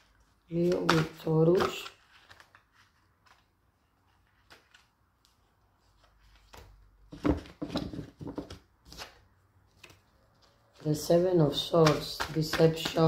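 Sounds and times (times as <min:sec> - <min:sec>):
cards being shuffled: 0:00.0 - 0:13.0.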